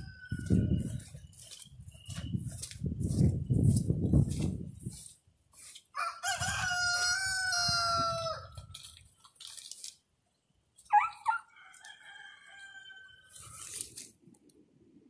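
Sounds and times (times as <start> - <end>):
rooster crowing: 0.0 - 1.1, 6.0 - 8.6, 10.9 - 13.8.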